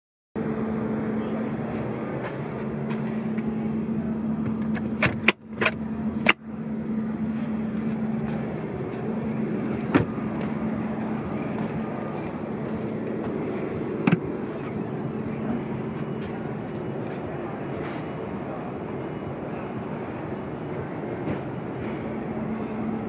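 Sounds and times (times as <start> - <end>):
steady low hum: 0.4 - 23.0.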